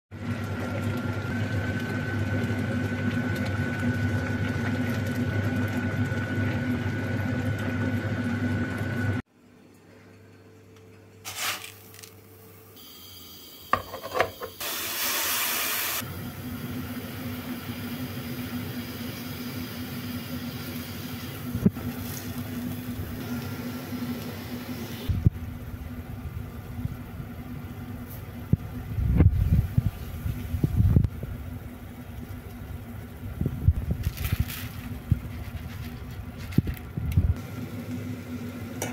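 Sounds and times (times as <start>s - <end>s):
food hissing in a pan: 11.3s - 12.0s, 14.6s - 16.0s.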